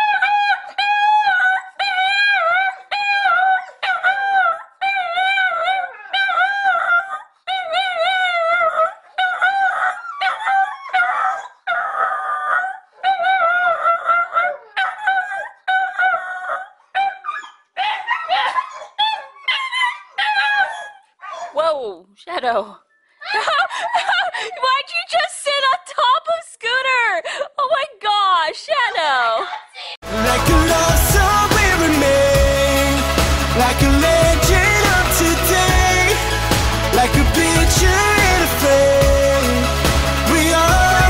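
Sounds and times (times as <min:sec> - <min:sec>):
dog howling: 0:00.0 - 0:21.6.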